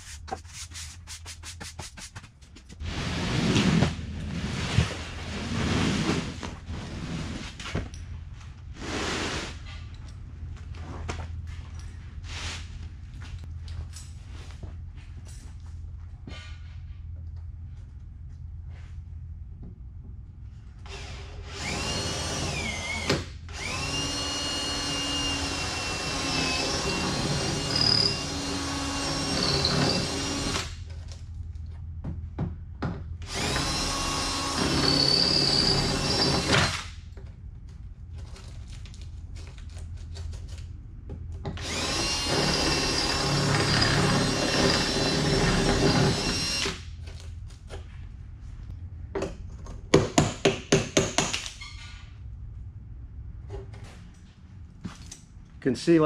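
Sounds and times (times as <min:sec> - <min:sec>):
power drill drilling into steel: 0:20.9 - 0:30.8, 0:33.3 - 0:36.9, 0:41.6 - 0:46.8.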